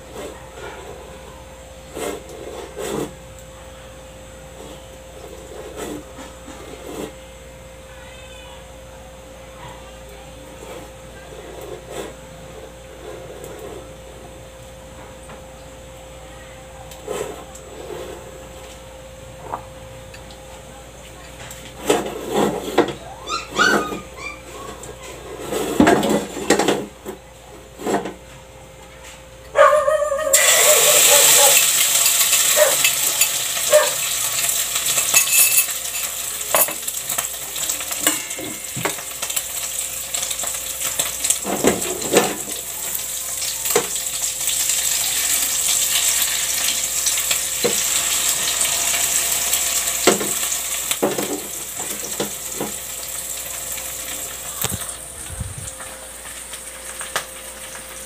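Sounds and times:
batter sizzling in hot oil: 30.3 - 55.1, 55.7 - 58.0.

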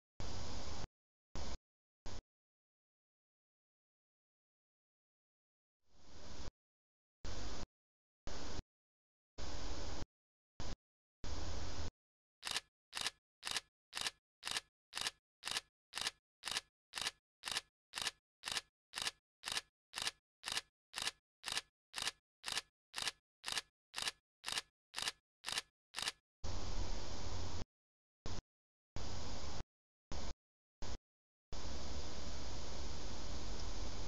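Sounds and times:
sharp clicking ticks: 12.4 - 26.2.

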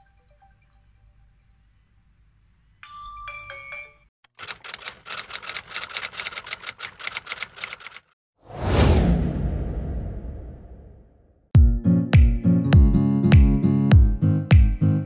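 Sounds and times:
bell-like chime: 2.8 - 4.1
typewriter keystroke clicks: 4.3 - 8.1.

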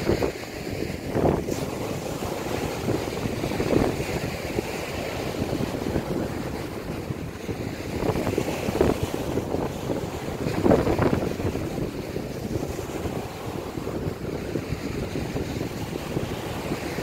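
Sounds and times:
sea waves breaking on beach: 0.0 - 17.0
wind buffeting microphone: 0.0 - 17.0.

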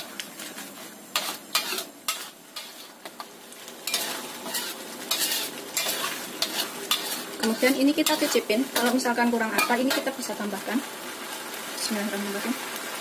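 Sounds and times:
utensil scraping a pan: 0.0 - 3.2, 3.8 - 10.3
chili paste sizzling in oil: 0.0 - 13.0.

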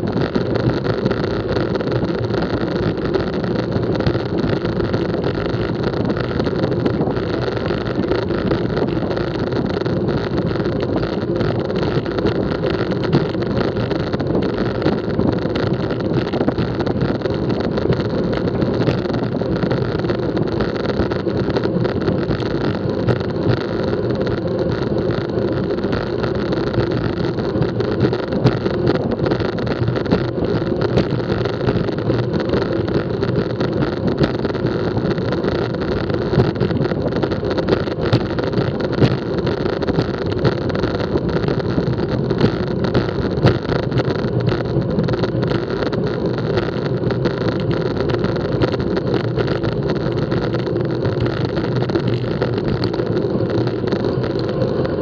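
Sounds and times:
bike tyres humming on asphalt: 0.0 - 55.0
wind rush on microphone: 0.0 - 55.0.

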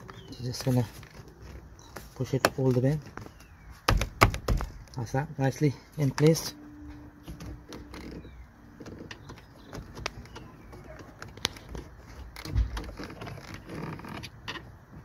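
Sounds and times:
dull thump: 3.8 - 4.8.

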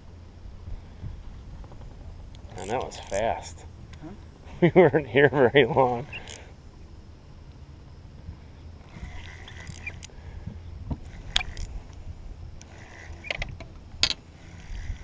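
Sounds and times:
low steady rumble: 0.0 - 15.0
clicks and knocks of fishing gear: 1.6 - 3.4, 8.9 - 12.0.

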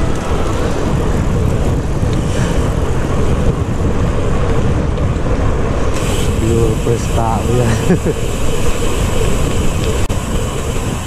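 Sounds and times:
wind buffeting microphone: 0.0 - 11.0
tyres hissing on asphalt: 5.8 - 11.0.

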